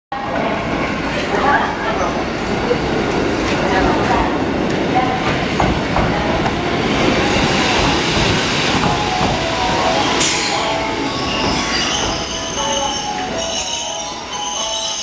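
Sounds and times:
train wheels rumbling on rails: 2.0 - 14.4
wheels and brakes squealing: 10.2 - 15.0.

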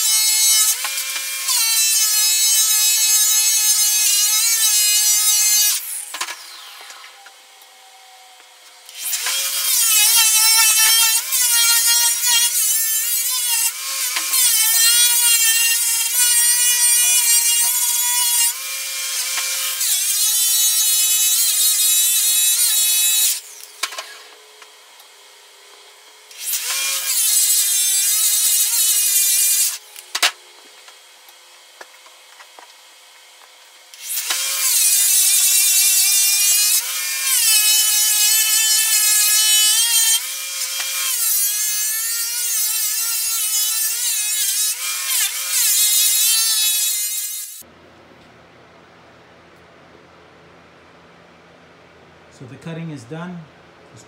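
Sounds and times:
electric polisher whining: 5.4 - 12.7.

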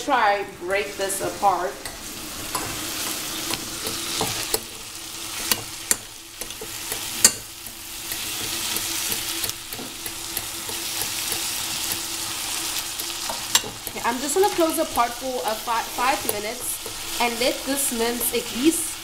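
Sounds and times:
meat and onions sizzling in oil: 0.0 - 19.0
spoon stirring mince: 5.4 - 18.6.

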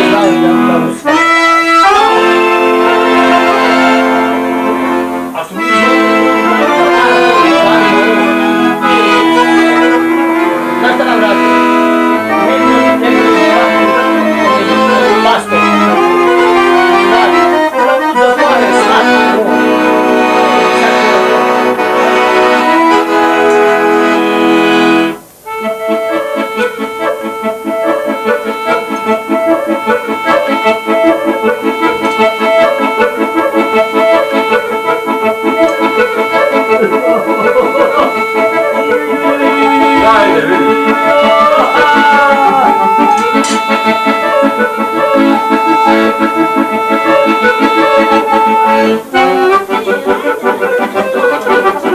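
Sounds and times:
button accordion melody: 0.0 - 51.9.

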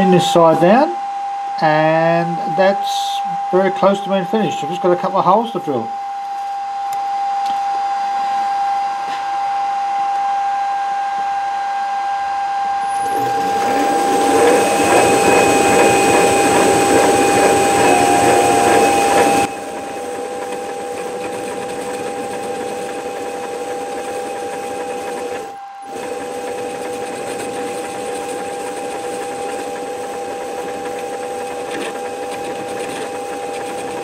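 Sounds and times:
metal lathe whining: 0.0 - 6.0, 10.2 - 34.0.

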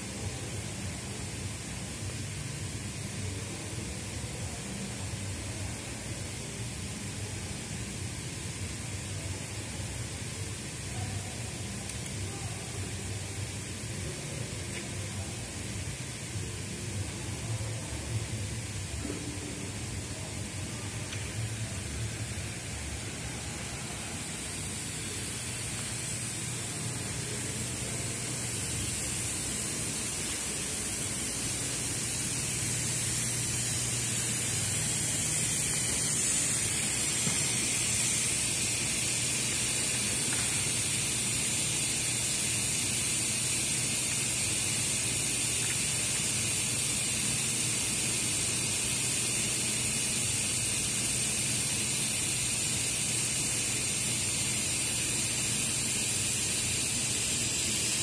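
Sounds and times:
rushing air hiss: 20.7 - 58.0.

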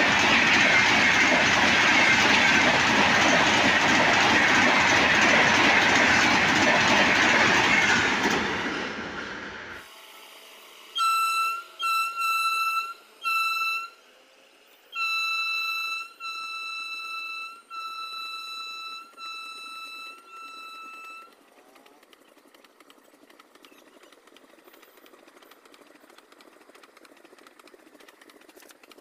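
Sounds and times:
faint rail clatter: 0.0 - 9.8, 17.0 - 29.0
locomotive horn blasts: 10.9 - 14.2, 14.9 - 21.4.

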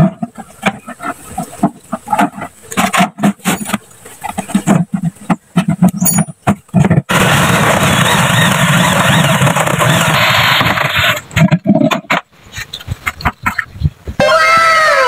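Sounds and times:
knocks and clicks: 1.5 - 7.1
electric drill boring through plastic: 7.1 - 11.2.

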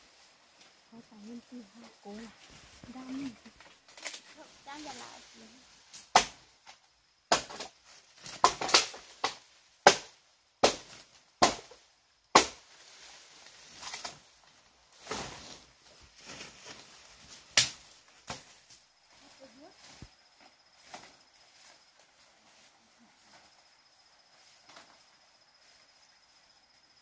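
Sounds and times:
sharp chopping strikes: 6.1 - 6.4, 7.3 - 7.7, 8.3 - 12.6.

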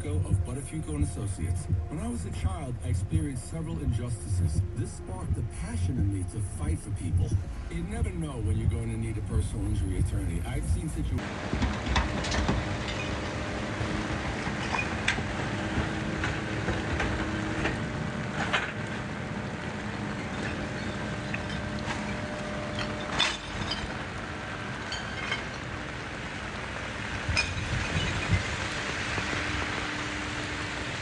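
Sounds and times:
low vehicle engine hum: 0.0 - 31.0
sharp knocks and clatters: 11.2 - 13.5
heavy rain pouring on street: 23.8 - 31.0.

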